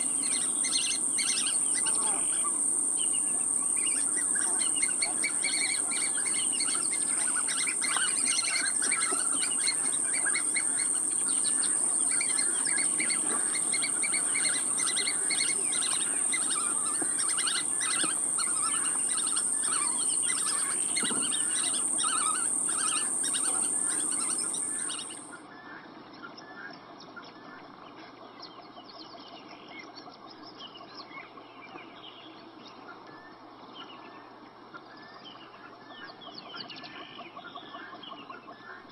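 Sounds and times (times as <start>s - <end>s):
birds chirping: 0.0s - 25.3s
steady high-pitched whine: 0.0s - 25.4s.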